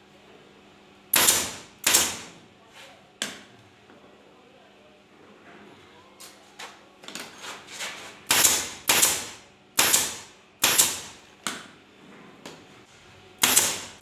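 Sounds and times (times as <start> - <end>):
pneumatic staple gun firing: 1.1 - 2.3, 8.3 - 11.2, 13.4 - 14.0.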